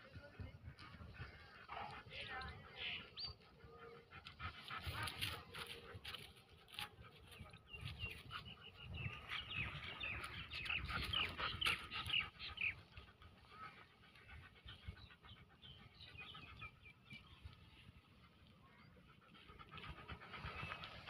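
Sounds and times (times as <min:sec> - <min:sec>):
dog panting: 0:00.0 - 0:21.0
birds chirping: 0:07.1 - 0:21.0.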